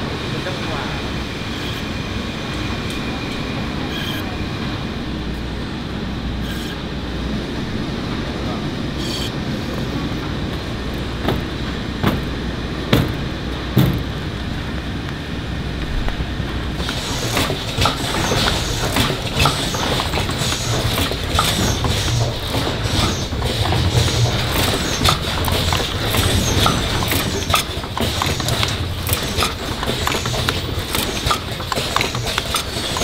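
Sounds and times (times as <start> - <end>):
factory machinery humming: 0.0 - 33.0
sharp knocks: 11.2 - 14.1
machine clicking and rattling: 16.8 - 33.0.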